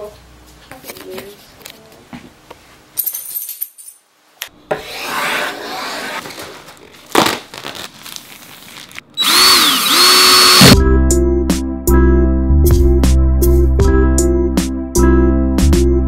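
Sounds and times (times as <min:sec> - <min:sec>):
plastic wrap rustling: 0:06.2 - 0:09.2
cordless drill driving screw: 0:09.2 - 0:10.8
music: 0:10.5 - 0:16.0.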